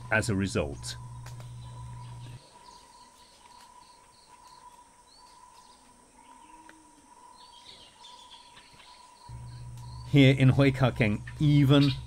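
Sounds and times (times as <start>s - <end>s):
low hum: 0.0s - 2.4s, 9.3s - 12.0s
insect drone: 0.0s - 12.0s
pulsing insect call: 0.0s - 12.0s.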